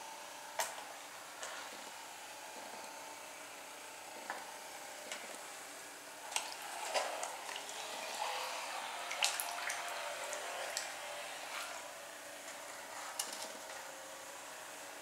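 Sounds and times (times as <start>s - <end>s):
water splashing: 6.3s - 11.0s
toy boat electric motor whirring: 6.4s - 11.9s
water dripping into tray: 9.1s - 10.9s.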